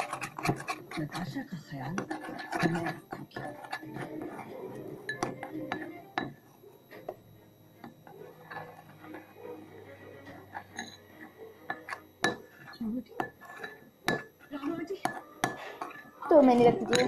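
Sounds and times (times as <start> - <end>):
small containers clicking and knocking: 0.0 - 4.3.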